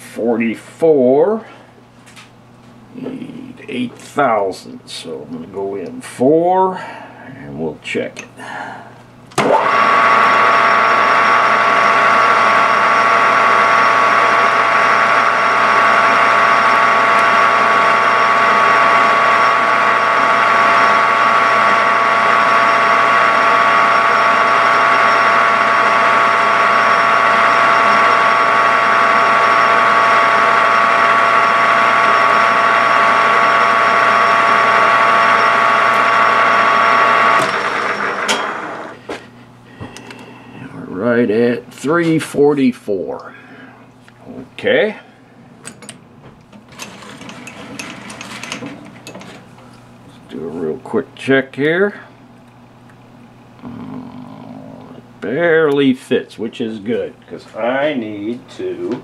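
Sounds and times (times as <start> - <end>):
metal lathe gear whine: 9.4 - 39.0, 45.7 - 50.8
lathe winding down: 9.4 - 39.1, 46.6 - 49.5.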